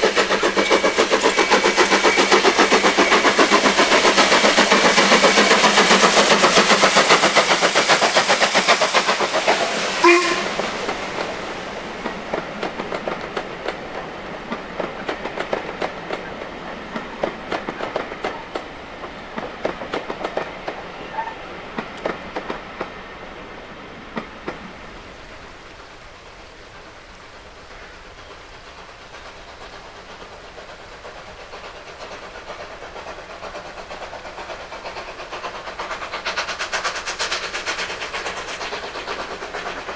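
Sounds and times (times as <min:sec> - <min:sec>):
train wheels clattering: 0:00.0 - 0:23.5, 0:25.8 - 0:39.9
short sharp tone: 0:10.0 - 0:10.5.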